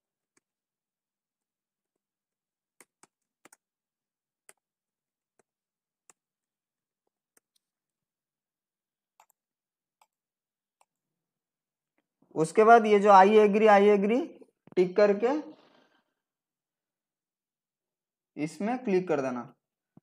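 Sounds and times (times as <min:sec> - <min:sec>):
computer keyboard and mouse clicks: 0:02.7 - 0:03.7, 0:07.0 - 0:07.7, 0:09.1 - 0:09.4.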